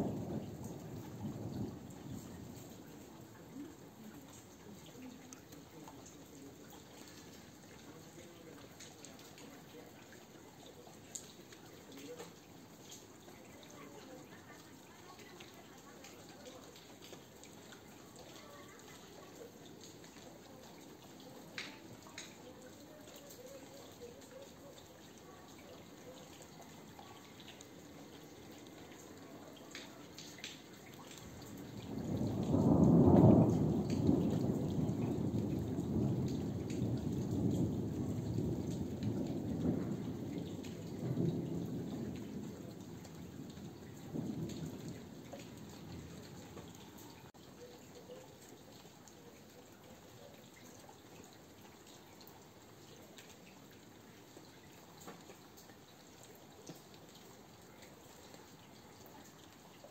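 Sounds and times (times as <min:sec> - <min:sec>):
thunder rumbling: 0:00.0 - 0:04.0, 0:31.2 - 0:46.8
light rain dripping: 0:00.0 - 0:59.9.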